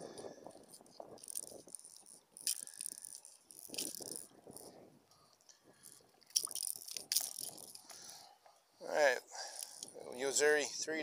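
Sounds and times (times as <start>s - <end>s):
plastic lure rattling: 0.2s - 4.8s, 5.4s - 8.0s.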